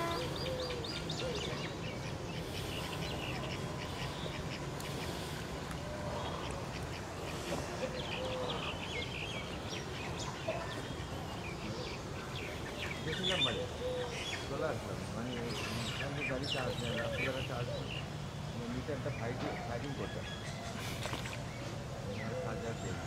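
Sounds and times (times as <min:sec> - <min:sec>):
short lower bird calls: 0:00.0 - 0:05.4
birds chirping and calling: 0:00.0 - 0:23.0.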